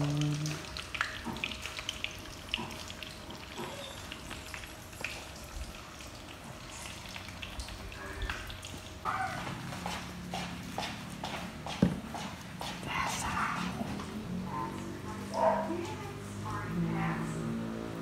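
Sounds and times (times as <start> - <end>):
hot oil sizzling and popping: 0.0 - 11.6.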